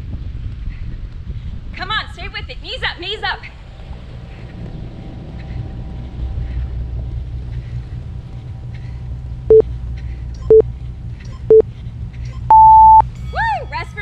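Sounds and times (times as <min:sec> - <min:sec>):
wind on microphone: 0:00.0 - 0:08.7
timer beeps: 0:10.4 - 0:10.6, 0:11.3 - 0:11.6, 0:12.3 - 0:13.0.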